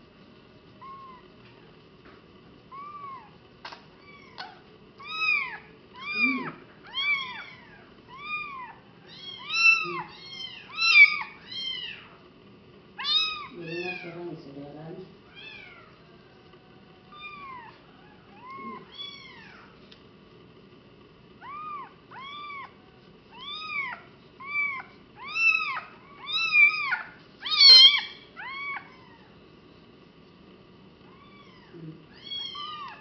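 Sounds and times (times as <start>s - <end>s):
kitten mewing: 4.0s - 12.1s, 13.0s - 14.1s, 17.1s - 19.7s, 21.4s - 29.3s.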